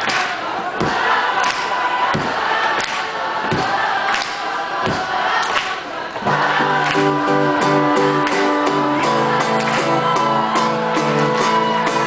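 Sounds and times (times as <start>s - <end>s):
audience clapping in time: 0.0s - 0.4s, 1.4s - 12.0s
crowd singing along: 0.0s - 12.0s
acoustic guitar strumming chords: 6.3s - 12.0s.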